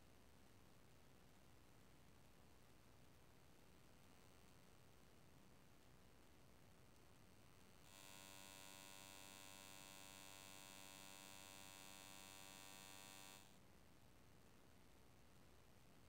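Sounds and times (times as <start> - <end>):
faint electrical buzz: 5.7 - 13.7.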